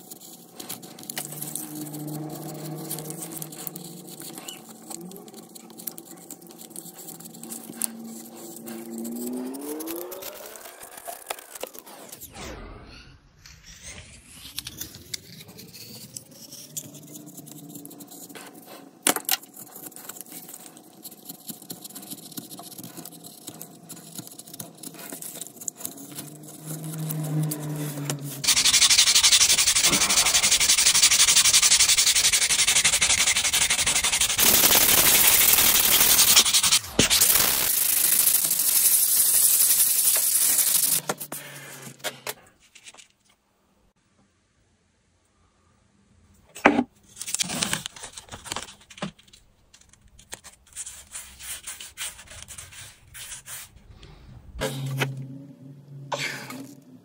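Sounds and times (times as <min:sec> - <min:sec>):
sanding rubbing noise: 0:00.0 - 0:12.2, 0:14.2 - 0:41.8, 0:50.6 - 0:53.9.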